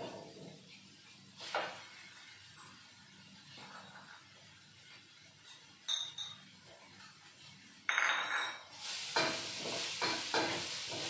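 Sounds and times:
spice paste sizzling in wok: 0.6 - 3.6, 8.7 - 11.0
kitchenware clinking: 5.4 - 6.5, 7.9 - 10.6.

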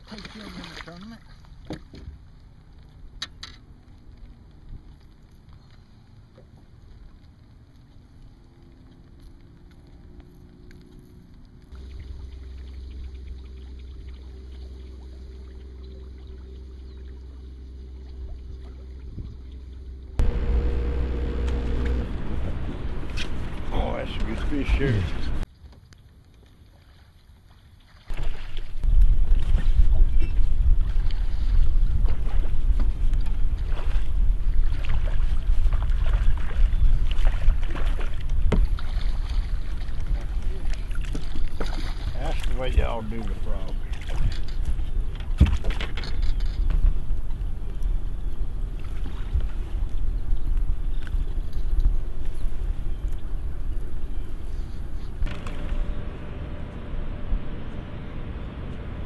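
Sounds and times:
boat motor humming: 0.0 - 25.5, 28.1 - 59.0
wind on microphone: 28.1 - 42.5.

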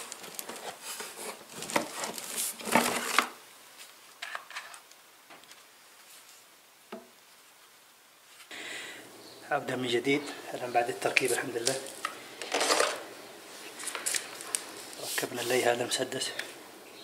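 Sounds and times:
plastic wrapping rustling: 0.0 - 6.4, 10.5 - 16.6.

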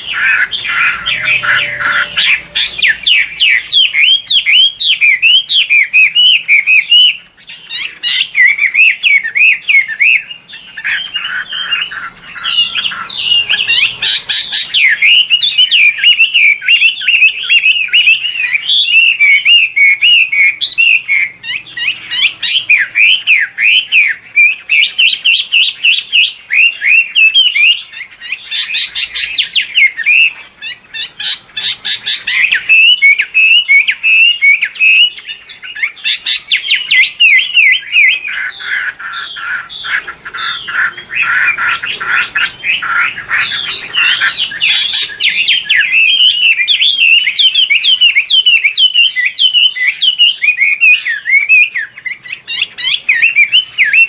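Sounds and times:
songbird singing whistled notes: 0.0 - 54.0.

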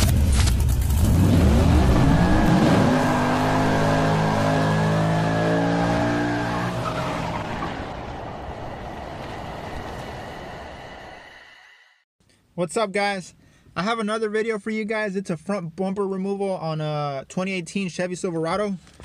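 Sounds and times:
car engine revving: 0.6 - 10.1.

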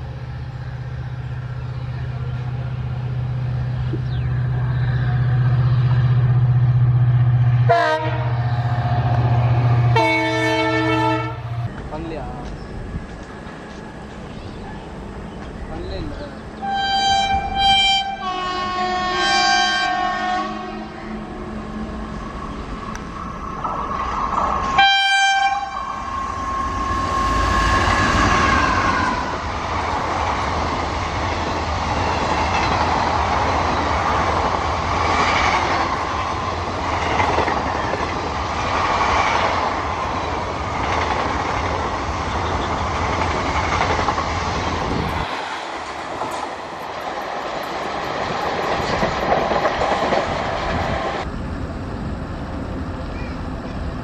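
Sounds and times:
train rumble: 0.0 - 54.0
locomotive horn: 7.6 - 11.7, 16.6 - 21.0, 24.8 - 29.4
wheels clacking over rail joints: 28.7 - 51.2.

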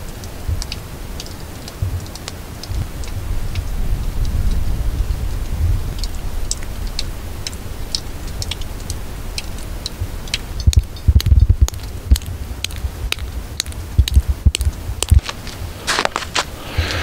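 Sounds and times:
wind rumbling on microphone: 0.1 - 17.0
footsteps crunching on snow: 15.0 - 17.0.

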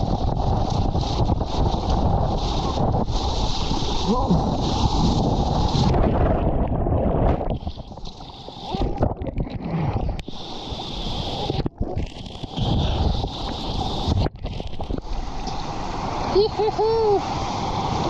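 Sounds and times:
muffled whitewater rushing: 0.0 - 18.0.

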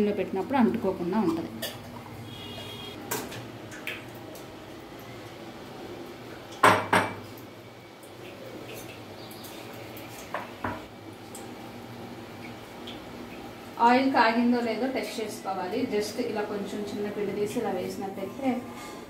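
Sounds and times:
dishes clinking: 1.6 - 2.0.

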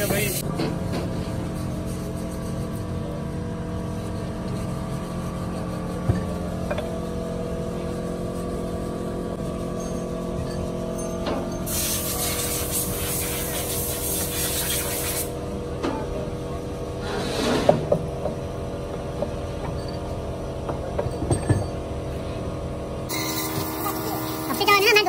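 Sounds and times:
spray hissing: 11.7 - 15.3
machine drone: 23.0 - 25.0.

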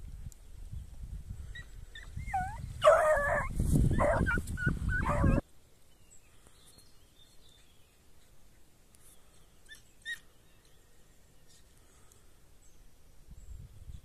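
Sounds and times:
dog yipping and whining: 1.9 - 5.4
dog yelping barks: 2.3 - 5.4.

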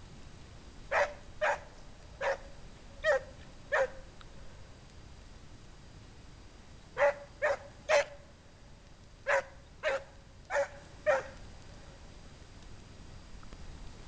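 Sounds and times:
dog barking: 0.9 - 4.0, 7.0 - 8.2, 9.2 - 11.4.

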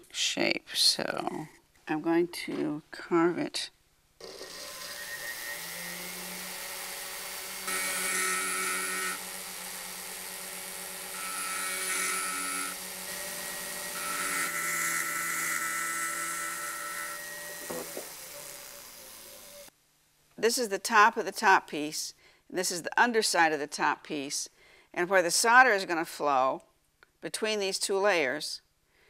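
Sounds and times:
burr cutting metal: 4.2 - 19.7
rotary tool whining: 4.2 - 19.7.

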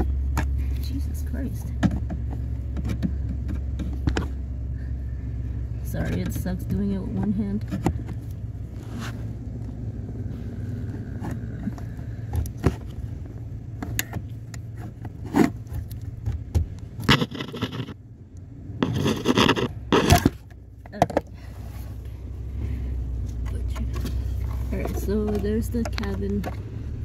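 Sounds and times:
steady low hum: 0.0 - 27.0
screwdriver scraping plastic: 17.0 - 18.0, 18.8 - 20.3.

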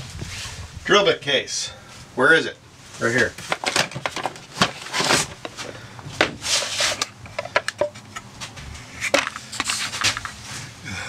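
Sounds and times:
tools clattering in cardboard box: 3.4 - 5.8.

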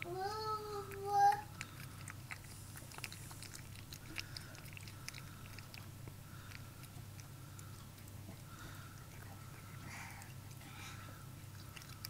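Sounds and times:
cat chewing food: 0.0 - 12.0
faint low hum: 0.0 - 12.0.

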